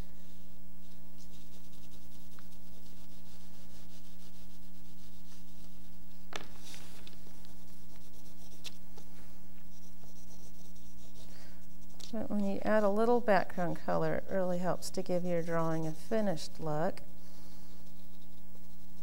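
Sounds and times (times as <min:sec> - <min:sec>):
steady low hum: 0:00.0 - 0:19.0
pastel scratching on paper: 0:00.2 - 0:13.9, 0:17.5 - 0:19.0.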